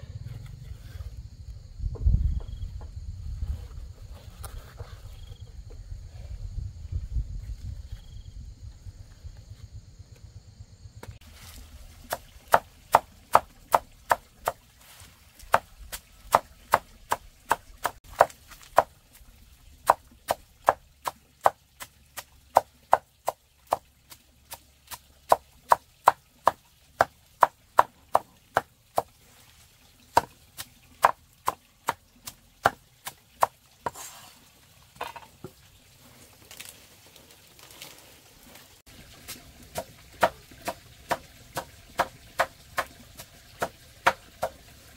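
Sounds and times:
cleaver chopping leafy greens: 11.4s - 14.6s, 15.4s - 18.9s, 19.8s - 29.1s, 30.1s - 34.0s, 39.2s - 44.6s.

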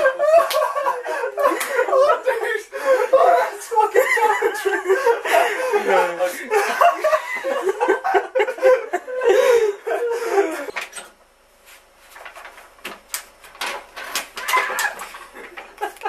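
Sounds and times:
person laughing: 0.0s - 10.7s, 14.4s - 16.0s.

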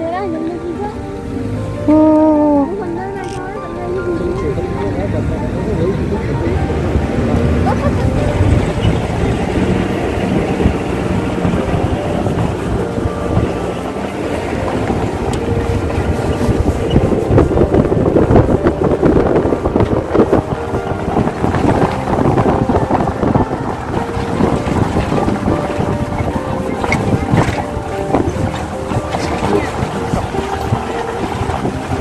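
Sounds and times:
jeep engine running: 0.0s - 32.0s
wind buffeting microphone: 0.0s - 32.0s.

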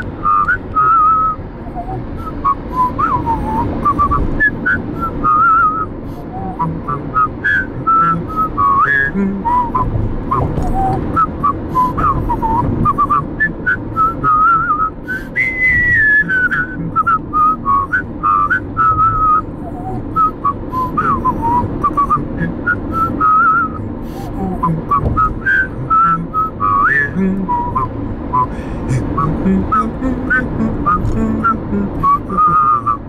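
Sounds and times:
car road noise rumble: 0.0s - 33.0s
whistled melody: 0.2s - 5.8s, 6.6s - 19.4s, 20.2s - 23.8s.

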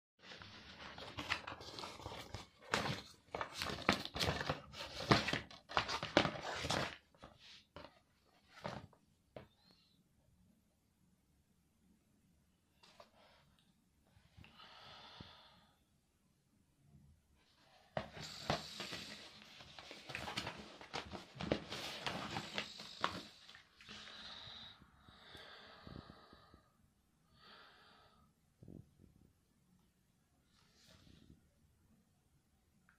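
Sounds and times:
plastic cases rustling and clicking: 0.6s - 8.9s, 18.0s - 23.9s
rustling and knocks of handling: 18.0s - 23.6s
breathy exhalations: 22.0s - 26.7s.

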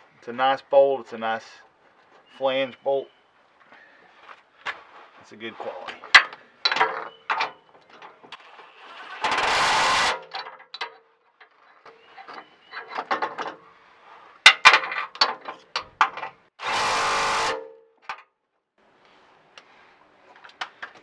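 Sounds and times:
power ratchet motor running: 9.0s - 10.2s, 16.6s - 17.6s.

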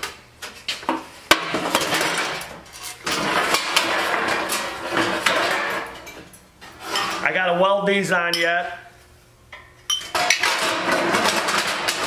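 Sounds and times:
sheet metal rattling and scraping: 1.4s - 7.4s, 10.1s - 12.0s.

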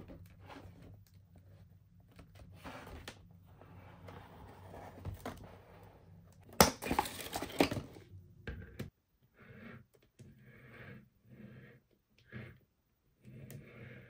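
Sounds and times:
cardboard and plastic rustling: 6.8s - 8.1s.

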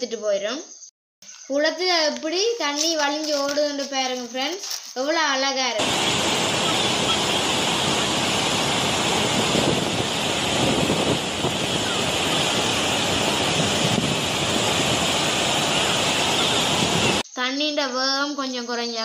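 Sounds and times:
water rushing down spillway: 5.8s - 17.2s.

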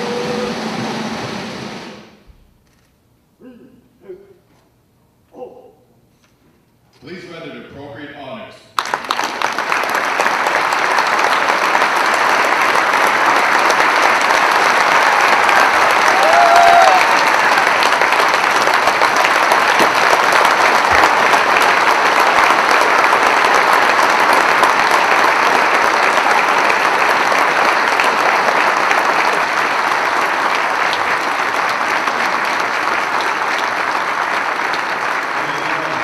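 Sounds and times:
audience applauding: 8.8s - 36.0s.

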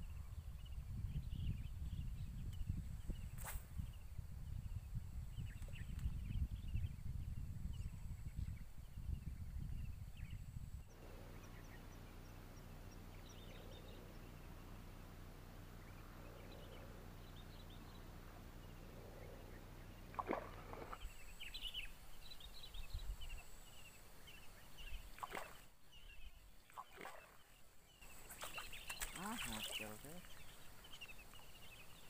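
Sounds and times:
steady low hum: 0.0s - 32.0s
small bird chirps: 15.8s - 32.0s.

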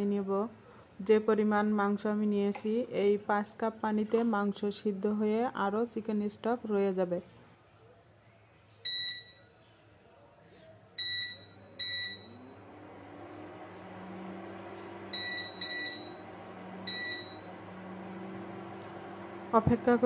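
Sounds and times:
cooktop running hum: 11.0s - 20.0s
short high beeps: 15.1s - 16.2s, 16.9s - 17.4s.

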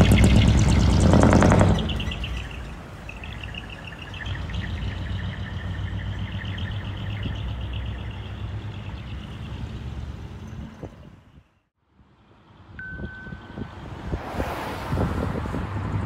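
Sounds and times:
truck exhaust roaring: 0.0s - 11.3s
small birds chirping: 1.8s - 11.7s.

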